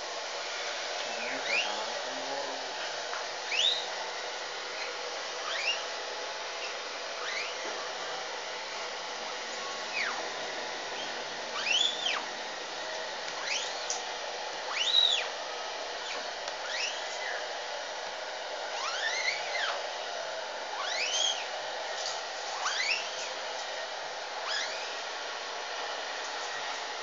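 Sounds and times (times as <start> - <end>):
hot-air dryer blowing: 0.0 - 27.0.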